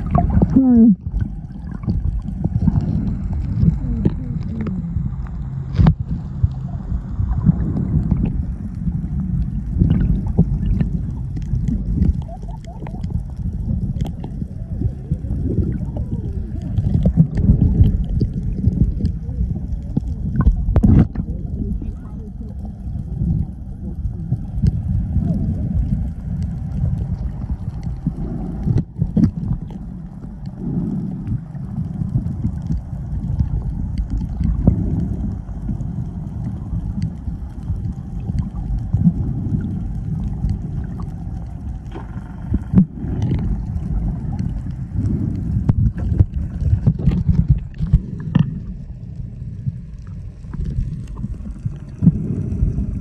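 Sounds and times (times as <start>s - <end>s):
underwater rumble: 0.0s - 53.0s
sharp underwater clicks: 24.4s - 49.2s.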